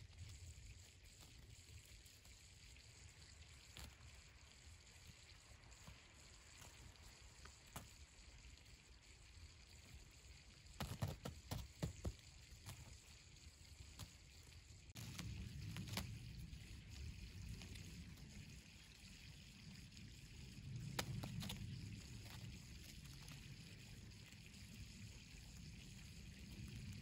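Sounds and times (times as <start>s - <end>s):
faint low rumble: 12.0s - 27.0s.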